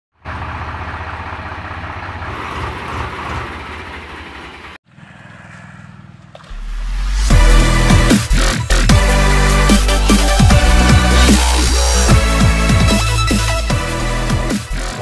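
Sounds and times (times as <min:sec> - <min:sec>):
tractor diesel engine running: 0:00.1 - 0:14.8
quieter steady engine sound: 0:00.2 - 0:06.7
electronic music with a beat: 0:06.8 - 0:15.0.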